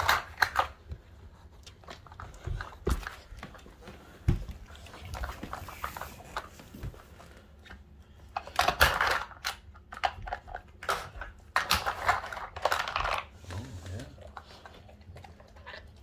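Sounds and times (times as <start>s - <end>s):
clicks and knocks from plastic puzzle: 7.6s - 13.4s.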